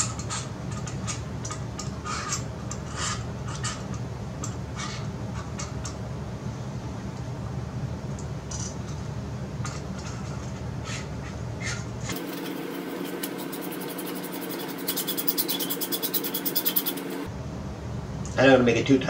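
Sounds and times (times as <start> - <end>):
steady low hum: 0.0 - 18.9
metal adapters clicking and scraping: 12.1 - 17.3.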